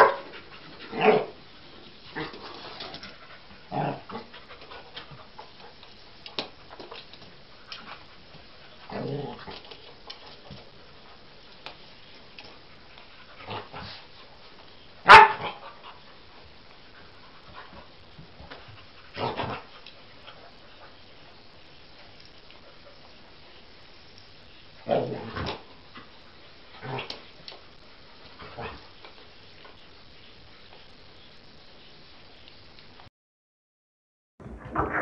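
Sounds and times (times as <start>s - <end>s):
dog barking: 0.0s - 0.2s, 15.0s - 15.6s.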